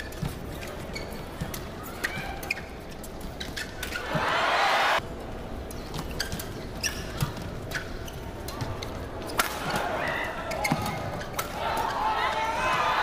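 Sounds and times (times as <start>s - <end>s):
court shoes squeaking: 0.0s - 4.5s, 5.2s - 13.0s
crowd noise: 3.8s - 5.8s, 8.3s - 13.0s.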